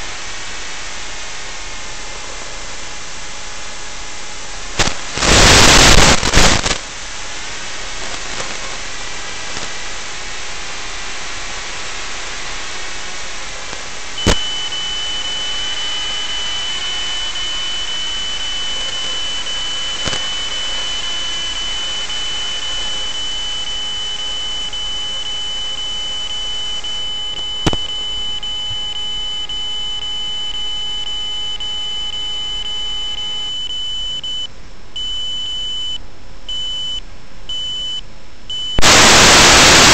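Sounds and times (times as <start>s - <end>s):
static hiss: 0.0s - 31.0s, 38.8s - 39.9s
loud crackling static: 0.0s - 33.5s, 38.8s - 39.9s
steady high-pitched tone: 14.1s - 38.0s, 38.6s - 39.9s.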